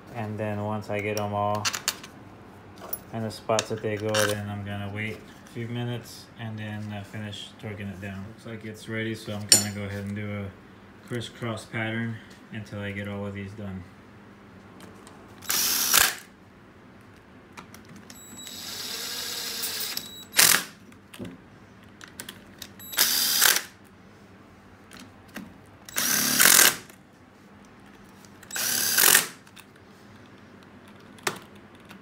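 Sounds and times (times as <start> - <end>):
power driver bursts: 15.4 - 16.3, 18.4 - 20.8, 22.8 - 23.8, 25.9 - 26.9, 28.5 - 29.4.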